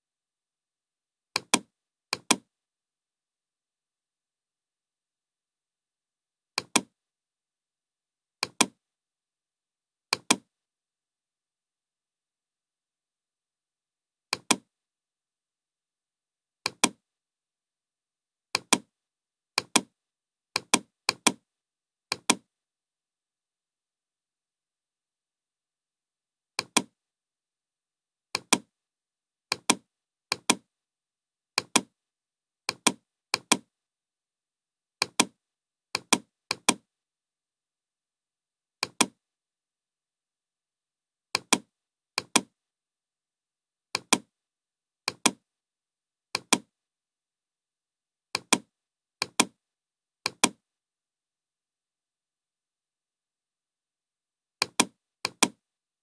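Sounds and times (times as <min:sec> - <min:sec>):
computer mouse clicks: 0:01.4 - 0:02.5, 0:06.6 - 0:06.9, 0:08.4 - 0:08.8, 0:10.1 - 0:10.5, 0:14.3 - 0:14.7, 0:16.7 - 0:17.0, 0:18.6 - 0:18.9, 0:19.6 - 0:19.9, 0:20.6 - 0:21.4, 0:22.1 - 0:22.5, 0:26.6 - 0:26.9, 0:28.4 - 0:28.7, 0:29.5 - 0:30.6, 0:31.6 - 0:31.9, 0:32.7 - 0:33.7, 0:35.0 - 0:35.4, 0:36.0 - 0:36.9, 0:38.8 - 0:39.2, 0:41.4 - 0:42.5, 0:43.9 - 0:44.3, 0:45.1 - 0:45.4, 0:46.4 - 0:46.7, 0:48.4 - 0:49.6, 0:50.2 - 0:50.6, 0:54.6 - 0:55.6.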